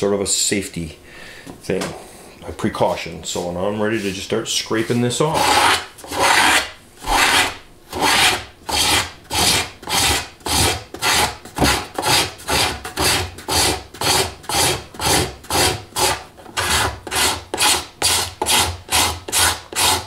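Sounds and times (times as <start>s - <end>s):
cabinet scraper scraping: 4.8s - 20.0s.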